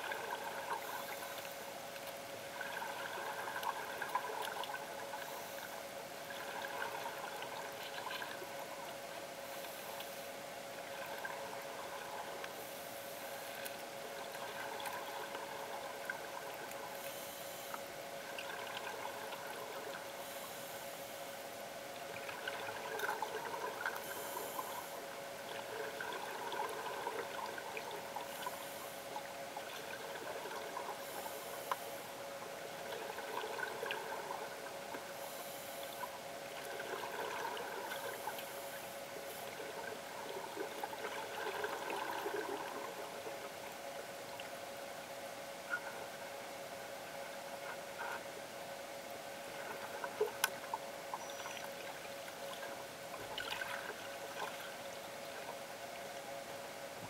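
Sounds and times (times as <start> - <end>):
steady hum: 0.0 - 57.0
gurgle of exhaled bubbles: 25.4 - 28.6, 32.6 - 34.8, 36.6 - 38.6, 39.4 - 43.6.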